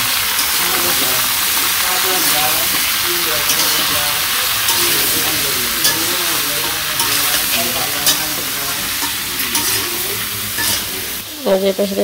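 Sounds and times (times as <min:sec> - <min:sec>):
vegetables sizzling in hot oil: 0:00.0 - 0:12.0
spatula clacking against pan: 0:00.3 - 0:10.9.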